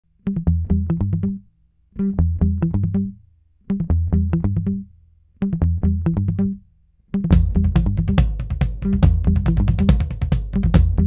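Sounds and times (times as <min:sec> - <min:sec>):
bass line: 0:02.0 - 0:03.2, 0:03.8 - 0:04.9, 0:05.5 - 0:06.7, 0:07.3 - 0:11.0
quick plucked notes: 0:07.3 - 0:11.0.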